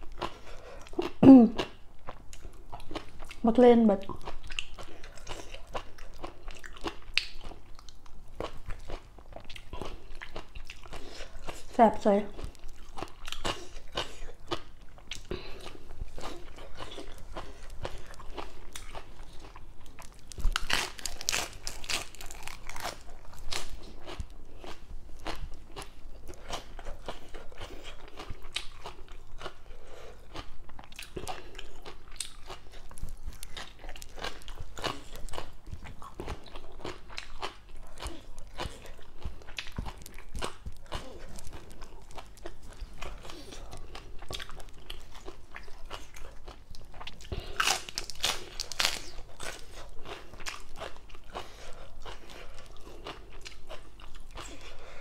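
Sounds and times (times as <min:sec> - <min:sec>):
person chewing crunchy food: 0:00.0 - 0:55.0.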